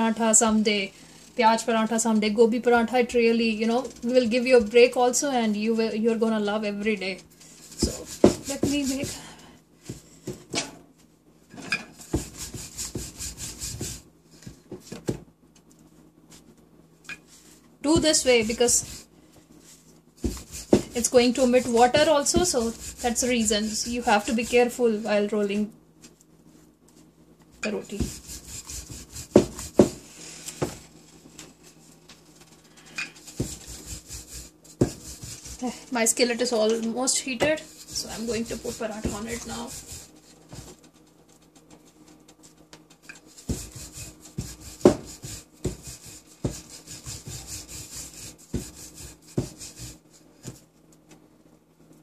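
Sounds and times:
rolling pin rubbing on dough: 6.9s - 10.1s, 12.0s - 14.6s, 17.3s - 25.3s, 27.7s - 30.7s, 33.2s - 40.8s, 42.4s - 50.6s
rolling pin knocking on board: 7.8s - 9.2s, 28.9s - 30.0s, 34.8s - 35.5s, 43.4s - 47.5s.

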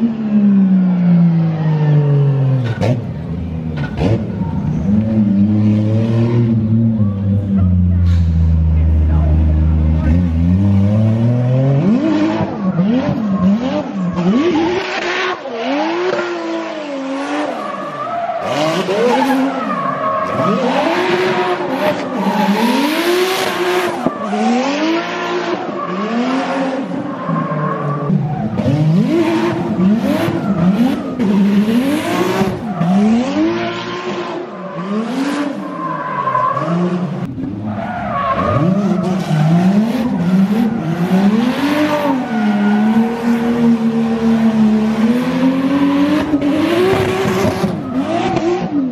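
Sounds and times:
car engine revving: 0.0s - 48.9s.

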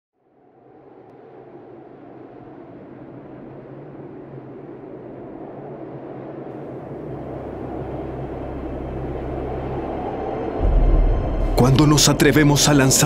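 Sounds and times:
low rumbling drone: 0.4s - 13.0s
deep steady hum: 6.6s - 13.0s.

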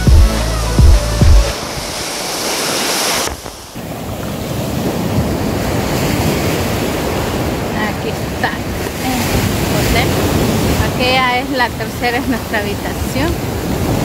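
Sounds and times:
music with a heavy beat: 0.0s - 1.6s
wind rumbling on microphone: 1.4s - 14.0s
surf washing up on a beach: 1.5s - 14.0s.

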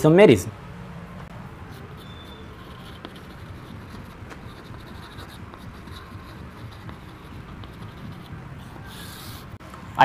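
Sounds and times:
low background hum: 0.0s - 10.0s
chalk scratching on chalkboard: 1.6s - 9.6s.

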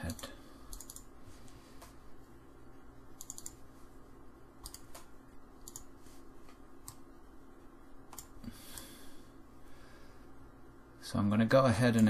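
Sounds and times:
faint steady hum: 0.0s - 12.0s
mouse and keyboard clicking: 0.1s - 1.1s, 3.2s - 3.6s, 4.6s - 5.9s.

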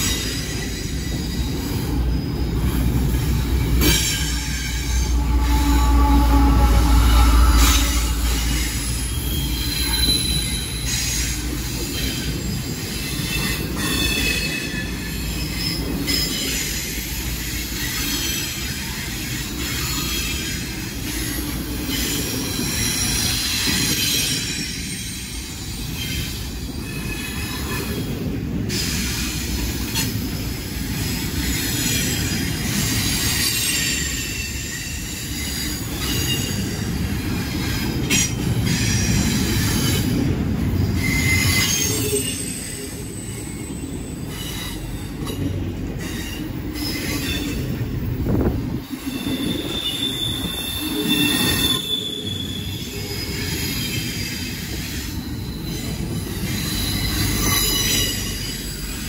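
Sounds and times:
freight train rumbling past: 0.0s - 59.0s
wheels squealing on rails: 0.0s - 59.0s.

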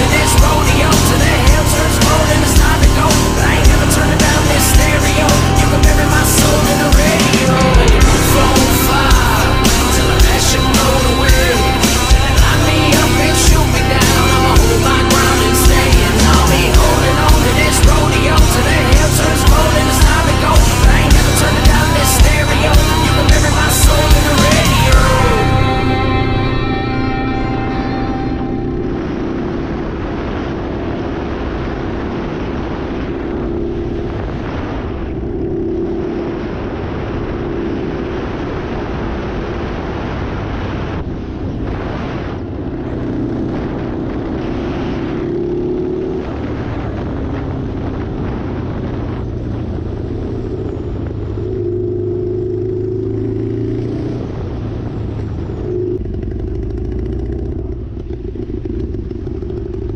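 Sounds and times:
motorcycle engine revving: 0.0s - 59.9s
wind rush: 0.0s - 59.9s
tyres on wet road: 38.2s - 59.9s.

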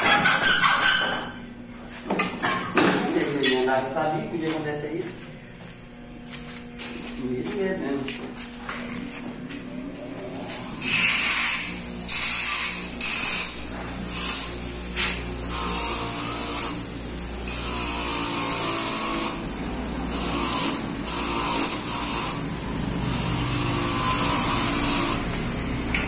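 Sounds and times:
grinder motor hum: 5.6s - 26.0s
high grinding hiss: 10.6s - 26.0s.

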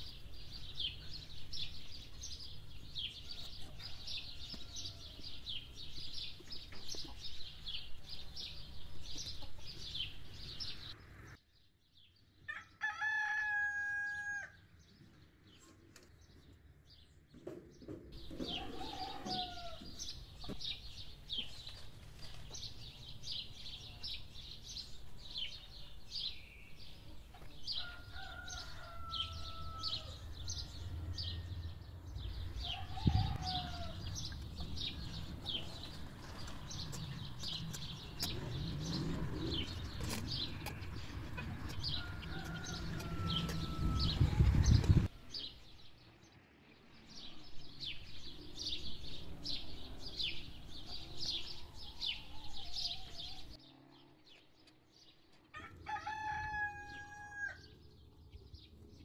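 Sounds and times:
chickens clucking: 9.1s - 10.2s
low rumble: 30.1s - 45.1s.

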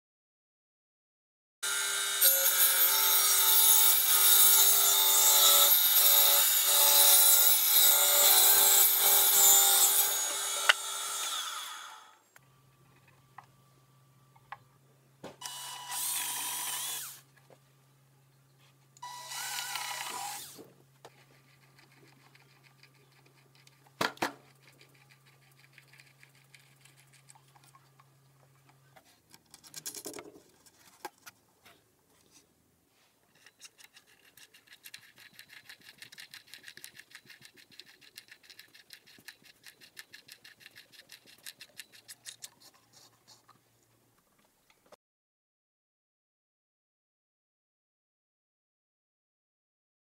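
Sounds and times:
cordless drill boring into wood: 15.4s - 17.2s, 19.0s - 20.6s.

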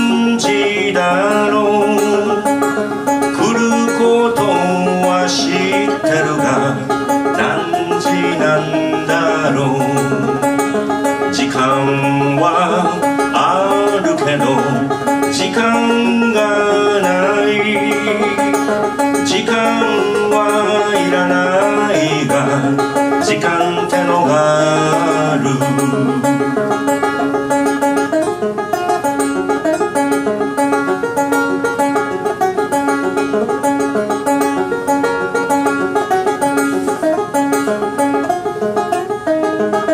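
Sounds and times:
man singing: 0.0s - 26.7s
banjo picking: 0.0s - 39.9s.

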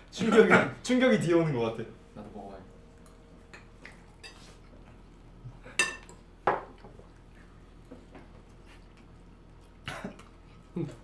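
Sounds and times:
spoons clinking on plates: 3.0s - 4.6s, 5.7s - 6.8s.

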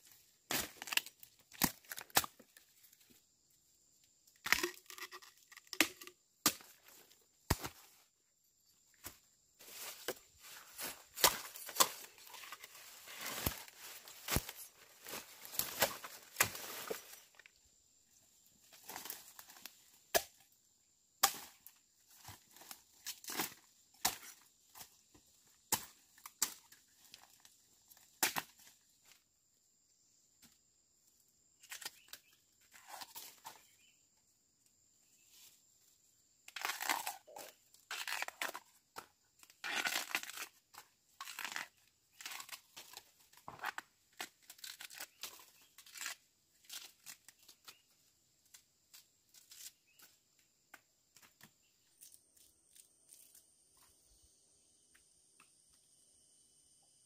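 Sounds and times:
plant material torn and rustled: 36.5s - 38.6s, 39.6s - 40.6s, 41.2s - 47.8s.

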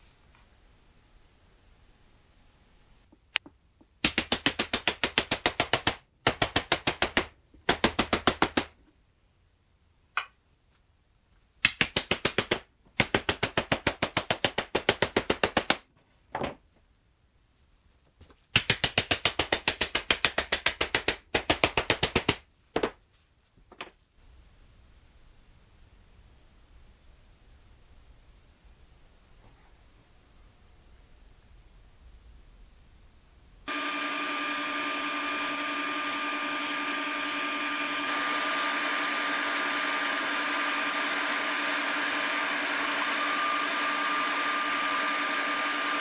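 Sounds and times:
small hammer tapping rapidly: 3.9s - 8.7s, 11.6s - 15.8s, 18.6s - 22.4s.

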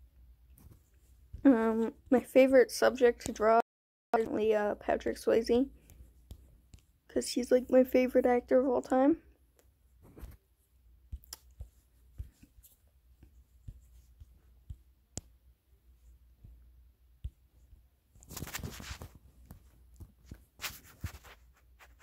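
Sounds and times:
brief rustling: 18.2s - 22.0s.

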